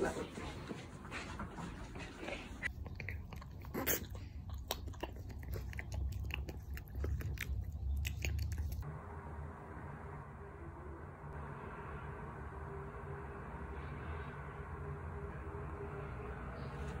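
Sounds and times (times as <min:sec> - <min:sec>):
puppy licking wet smacks: 0:02.7 - 0:08.8.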